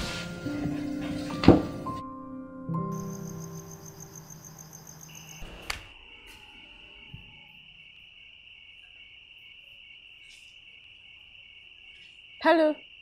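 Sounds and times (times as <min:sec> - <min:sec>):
crickets trilling: 0:02.8 - 0:13.0.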